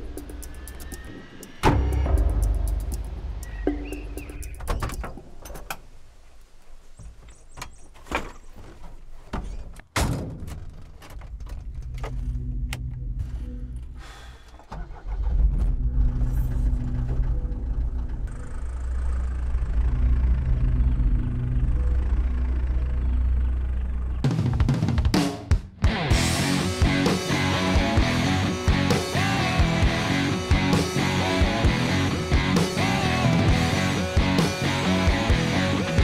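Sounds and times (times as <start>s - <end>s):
door and control clicks and thunks: 3.9s - 5.9s
van engine running: 14.7s - 24.5s, 26.1s - 36.0s.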